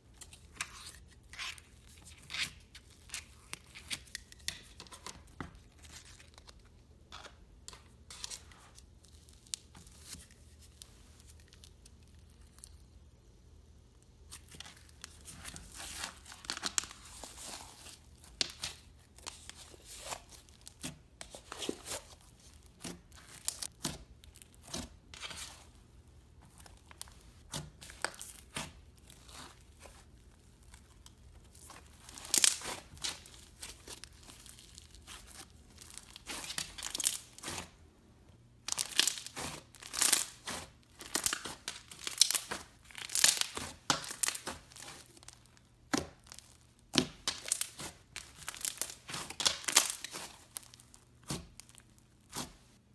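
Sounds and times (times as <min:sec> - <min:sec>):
slime crackling and tearing: 0:14.3 - 0:25.7, 0:26.4 - 0:37.7, 0:38.6 - 0:52.6.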